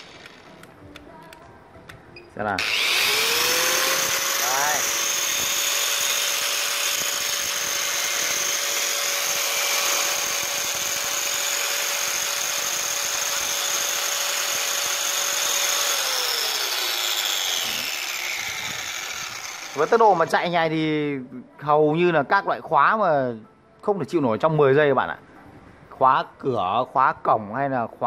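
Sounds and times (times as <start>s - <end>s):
angle grinder whining: 0.0s - 1.0s, 2.5s - 20.7s.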